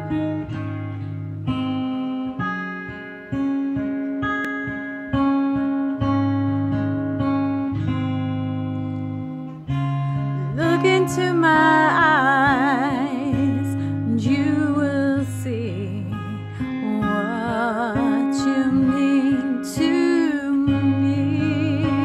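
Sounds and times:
acoustic guitar chords: 0.0s - 22.0s
person singing with vibrato: 10.6s - 22.0s.

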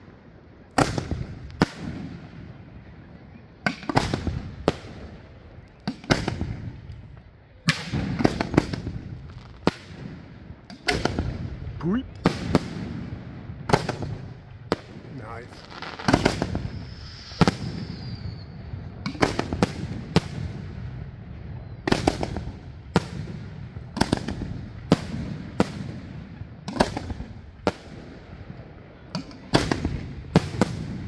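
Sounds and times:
firework shells bursting: 13.7s - 20.4s.

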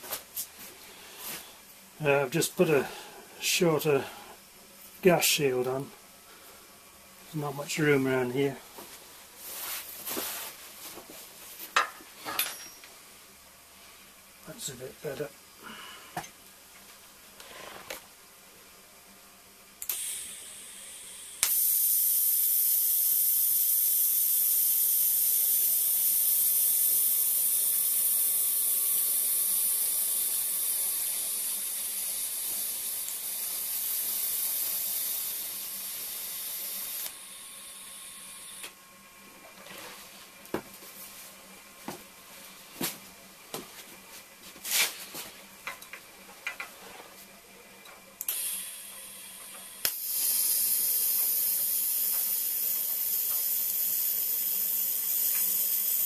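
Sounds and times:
welding arc hissing: 19.8s - 38.7s, 48.2s - 56.0s.

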